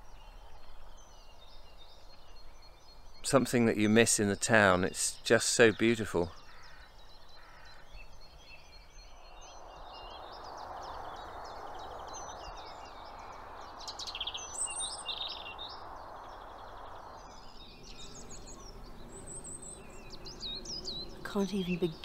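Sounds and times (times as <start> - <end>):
birds singing and chirping: 0.0 - 22.0
distant road traffic: 9.5 - 22.0.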